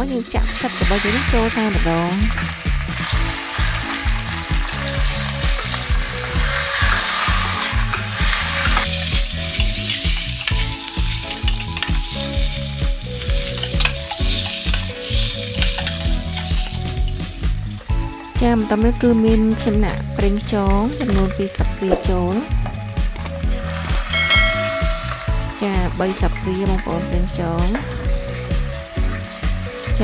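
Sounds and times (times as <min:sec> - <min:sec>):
food sizzling in hot oil: 0:00.0 - 0:30.0
metal spatula scraping pot: 0:04.9 - 0:17.2.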